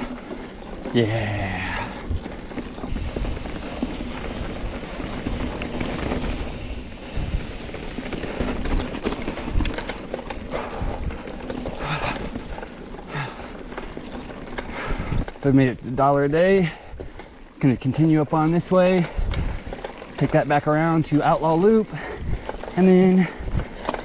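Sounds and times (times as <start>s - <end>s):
bike knocking and rattling: 0.0s - 24.0s
tyres rolling over dirt and rocks: 0.0s - 24.0s
steady rushing noise: 2.8s - 9.8s.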